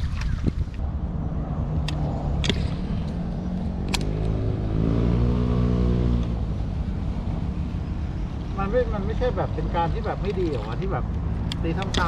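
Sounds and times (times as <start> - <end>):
engine passing by: 0.8 - 12.0
sharp clicks: 1.8 - 4.4, 11.1 - 12.0.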